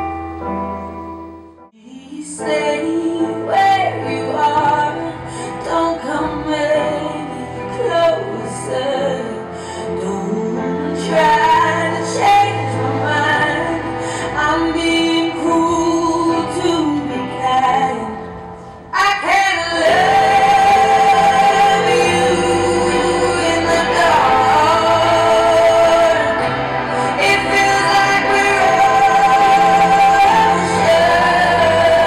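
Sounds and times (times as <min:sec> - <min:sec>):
song with singing: 0:01.8 - 0:32.0
steady bass line: 0:19.8 - 0:32.0.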